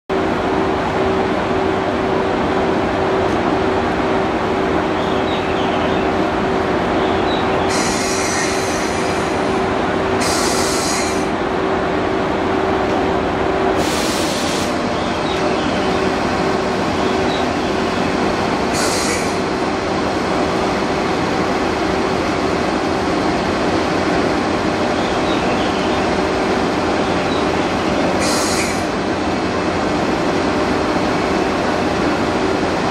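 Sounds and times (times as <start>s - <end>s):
short air hisses: 7.7s - 9.2s, 10.2s - 11.3s, 13.8s - 14.8s, 18.7s - 19.4s, 28.2s - 28.9s.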